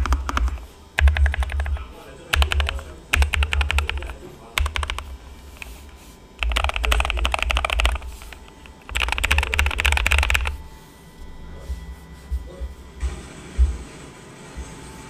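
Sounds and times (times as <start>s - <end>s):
mechanical keyboard typing: 0.0s - 5.8s, 6.4s - 10.6s.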